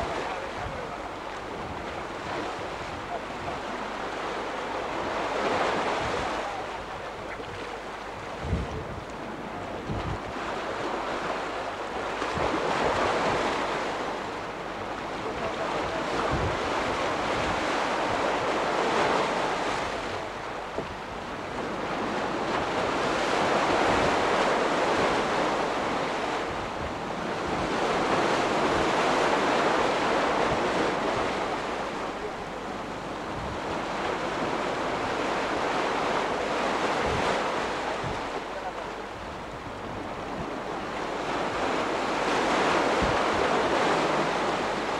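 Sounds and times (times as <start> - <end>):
sea waves washing against rocks: 0.0 - 44.9
wind buffeting microphone: 5.0 - 10.5, 15.3 - 18.4, 33.1 - 35.8, 39.2 - 44.9.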